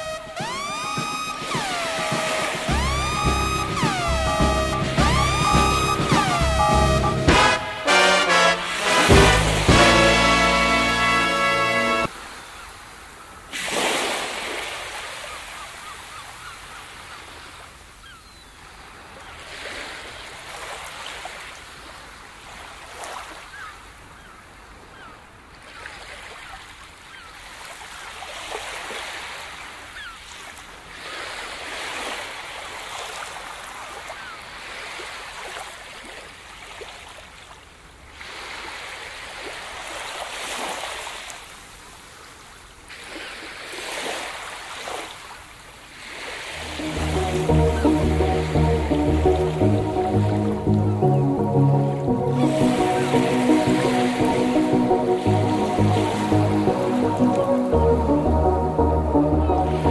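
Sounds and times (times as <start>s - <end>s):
ocean waves breaking: 0.0s - 18.2s, 18.8s - 23.7s, 42.9s - 59.9s.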